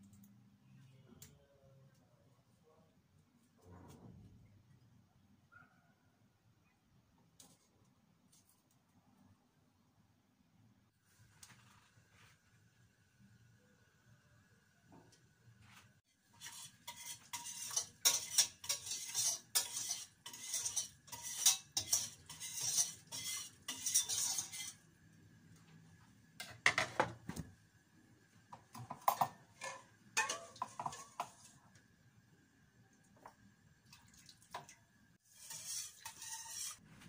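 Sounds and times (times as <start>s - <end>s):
metal spoon scraping a pot: 16.2s - 24.9s, 28.8s - 31.6s, 35.2s - 36.8s.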